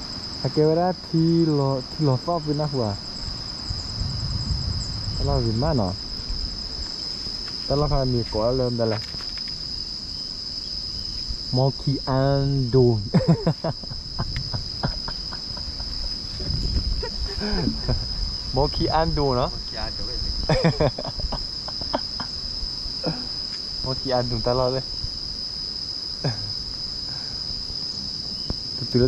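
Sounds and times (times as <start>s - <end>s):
high-pitched insect drone: 0.0s - 29.0s
people talking: 0.4s - 3.0s, 5.2s - 6.0s, 7.7s - 9.0s, 11.6s - 13.9s, 14.5s - 15.8s, 16.4s - 18.0s, 18.6s - 22.2s, 23.0s - 23.3s, 23.9s - 24.8s, 26.2s - 26.5s, 28.8s - 29.0s.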